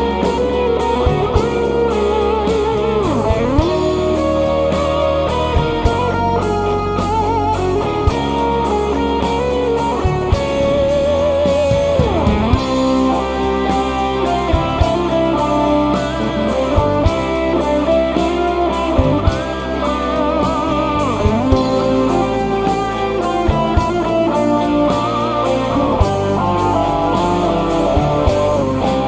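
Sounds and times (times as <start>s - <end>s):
bass guitar: 0.0s - 29.0s
drums: 0.0s - 29.0s
electric guitar lead: 0.0s - 29.0s
keyboard: 0.0s - 29.0s.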